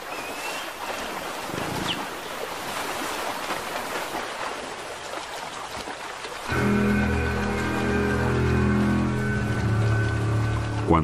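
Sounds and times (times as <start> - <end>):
river water rushing over stones: 0.0 - 11.0
background music with held tones: 6.5 - 11.0.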